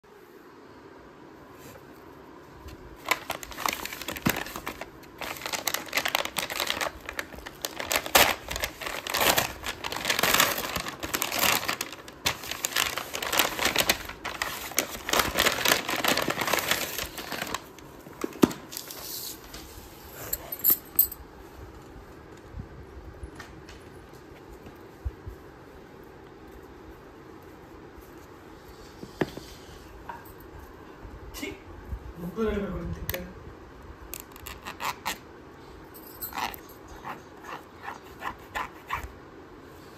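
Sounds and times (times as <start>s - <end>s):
paper bag crinkling and tearing: 3.0s - 19.4s.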